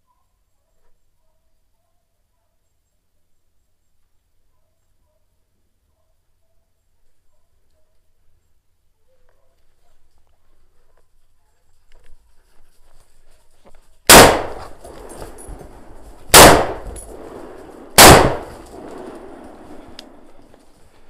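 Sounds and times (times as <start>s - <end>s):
rifle shots with echo: 14.1s - 20.5s
footsteps on leaves and stones: 14.6s - 21.0s.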